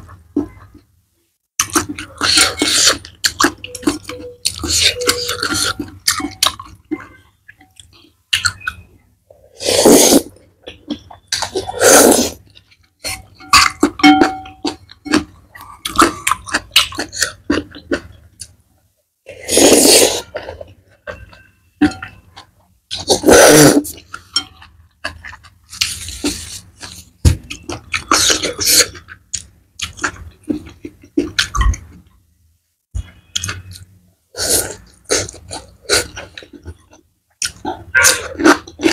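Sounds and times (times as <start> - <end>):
noodle slurps: 9.6 - 10.3, 19.3 - 20.3, 23.0 - 24.0
wet chewing: 10.1 - 18.6.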